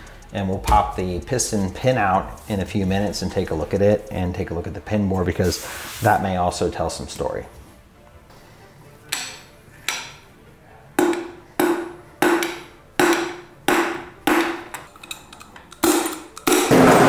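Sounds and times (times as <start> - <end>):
metallic knocks on piston: 11.0 - 14.9.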